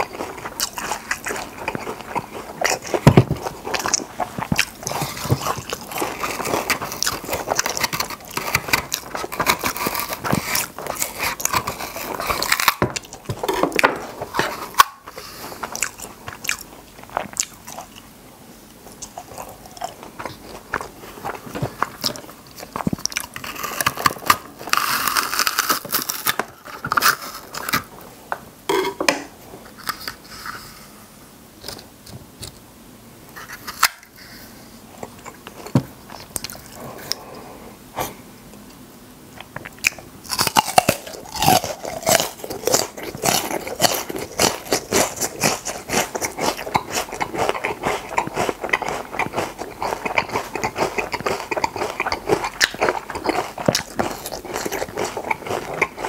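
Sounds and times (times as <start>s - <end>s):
crunching bites and chewing: 0.0s - 18.1s, 18.7s - 28.0s, 39.3s - 56.0s.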